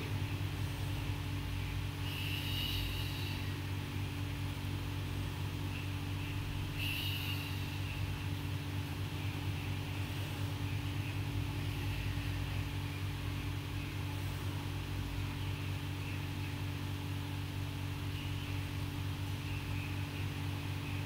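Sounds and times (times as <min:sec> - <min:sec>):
low hum: 0:00.0 - 0:21.0.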